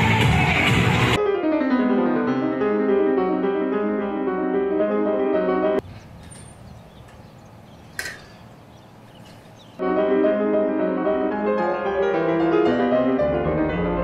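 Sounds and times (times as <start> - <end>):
piano music: 1.0 - 14.0.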